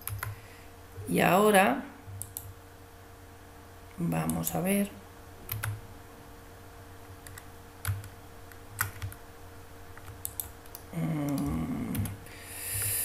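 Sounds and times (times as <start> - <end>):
keyboard and mouse clicks: 0.0 - 0.4, 2.2 - 2.5, 5.5 - 5.8, 7.2 - 9.2, 10.0 - 12.2
faint electrical hum: 0.0 - 13.0.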